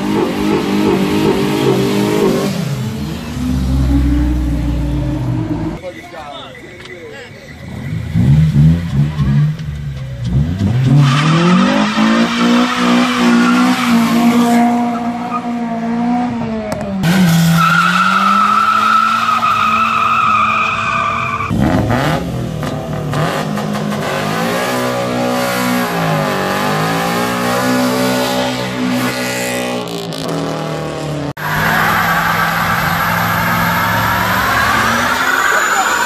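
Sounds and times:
car engines revving high: 0:00.0 - 0:05.8, 0:07.5 - 0:36.0
tyres squealing: 0:31.4 - 0:36.0.

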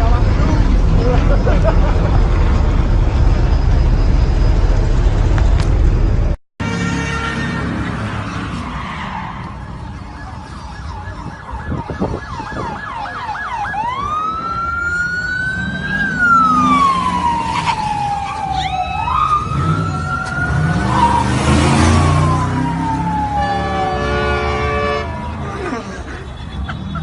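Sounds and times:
vehicle engine rumbling: 0:00.0 - 0:27.0
police siren yelping and wailing: 0:08.4 - 0:25.5.

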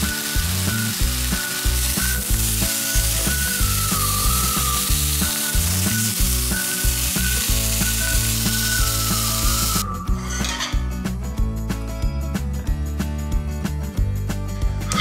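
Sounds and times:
meat sizzling in a frying pan: 0:00.0 - 0:09.8
light background music: 0:00.0 - 0:15.0.

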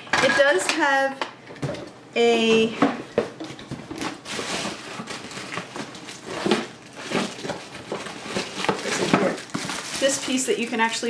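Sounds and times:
plastic packaging crinkling: 0:03.5 - 0:11.0.

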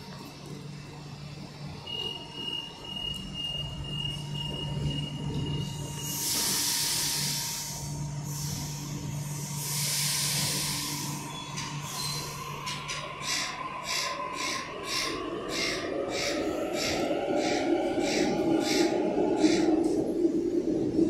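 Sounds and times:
train equipment low hum: 0:00.0 - 0:21.0
pneumatic air hiss: 0:06.0 - 0:12.4.

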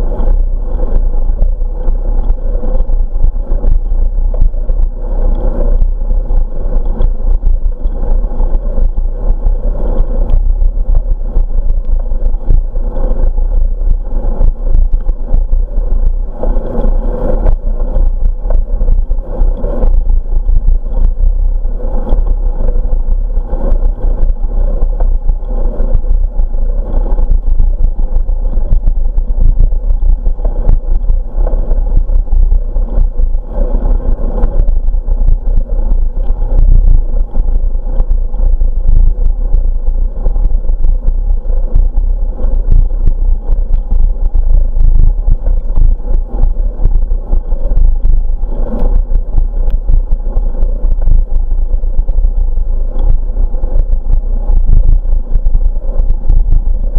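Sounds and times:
wind rumble on microphone: 0:00.0 - 0:56.9.

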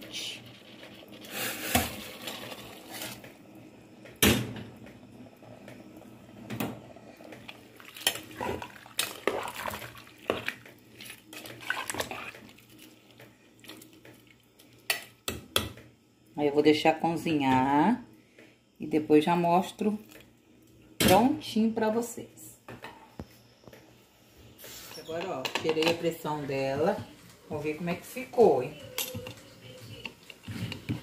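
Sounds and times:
water pouring into pot: 0:00.1 - 0:03.3, 0:06.8 - 0:14.4.

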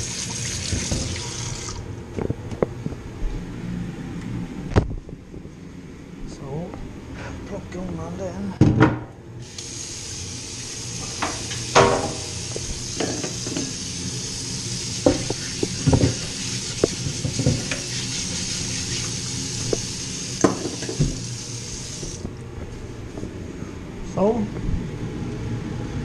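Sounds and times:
frying pan sizzling: 0:09.4 - 0:22.2.

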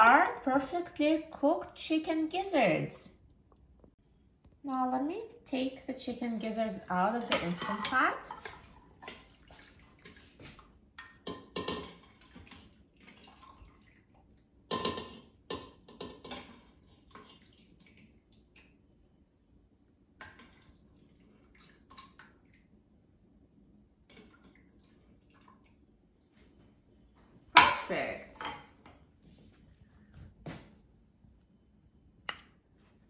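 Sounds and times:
spoon scraping metal pot: 0:07.2 - 0:09.3
liquid splashing and dripping: 0:08.3 - 0:15.0, 0:15.8 - 0:19.0, 0:20.2 - 0:23.2, 0:24.1 - 0:26.7.

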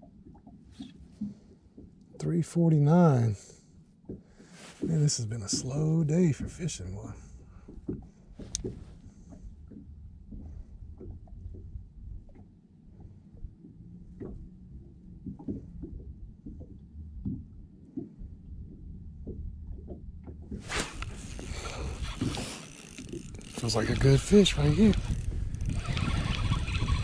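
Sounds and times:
boat low rumble: 0:00.0 - 0:27.0
fishing reel taps and clicks: 0:20.9 - 0:27.0.

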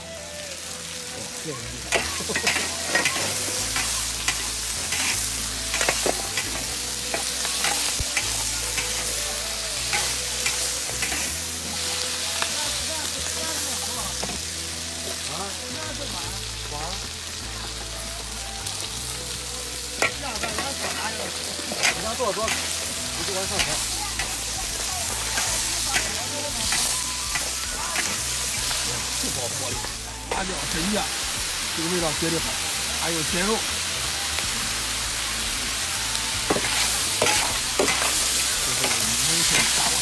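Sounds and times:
food sizzling in a wok: 0:00.0 - 0:40.0
metal spatula scraping a wok: 0:01.9 - 0:12.5, 0:20.0 - 0:31.3, 0:36.4 - 0:40.0.

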